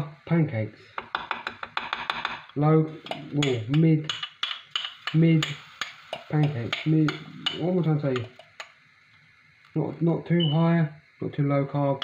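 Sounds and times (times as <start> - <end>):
utensils clinking on jug and pan: 3.0 - 8.7.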